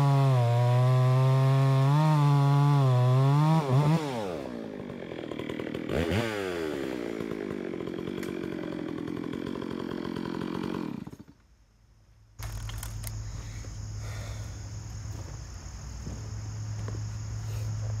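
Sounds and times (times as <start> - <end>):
chainsaw idling: 0.0 - 11.4
high insect drone: 11.4 - 18.0.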